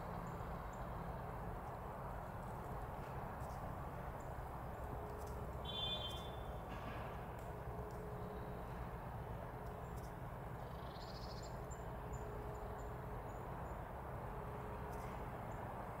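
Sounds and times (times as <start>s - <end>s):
low outdoor rumble: 0.0s - 16.0s
small bird chirping: 5.6s - 6.5s.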